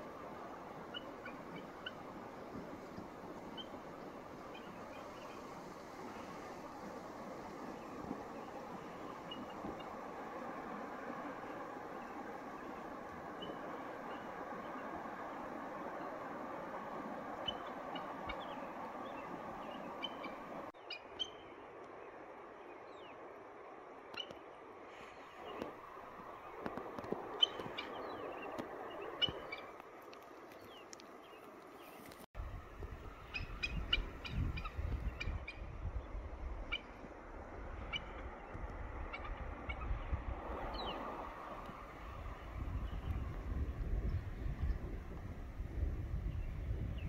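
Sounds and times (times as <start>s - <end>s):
river rushing: 0.0s - 20.7s
birds calling: 17.4s - 21.5s, 25.1s - 29.8s
steady low rumble: 32.4s - 47.0s.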